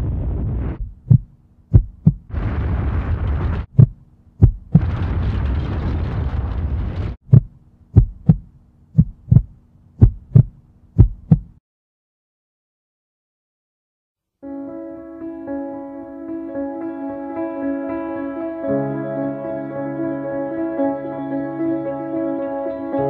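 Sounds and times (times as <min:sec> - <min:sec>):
heartbeat thumps: 0:00.8 - 0:02.3, 0:03.7 - 0:05.0, 0:07.2 - 0:11.6.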